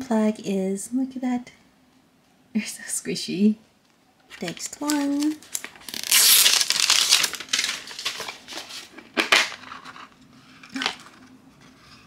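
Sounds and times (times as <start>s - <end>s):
plastic box handling rustle: 4.3s - 12.0s.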